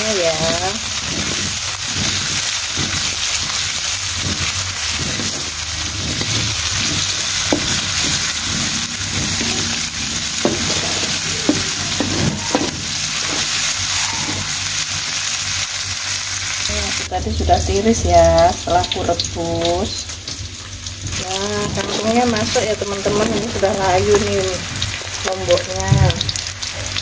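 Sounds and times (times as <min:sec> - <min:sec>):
wooden spatula scraping wok: 0:00.0 - 0:15.6
food sizzling in hot oil: 0:00.0 - 0:27.0
spatula tapping wok: 0:00.3 - 0:14.4.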